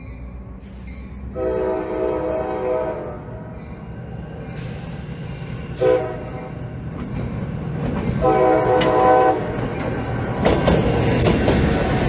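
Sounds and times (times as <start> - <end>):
diesel locomotive rumbling: 0.0 - 12.0
train horn blast: 1.3 - 3.4, 5.8 - 6.5, 8.2 - 9.6
wheels clacking over rail joints: 6.9 - 12.0.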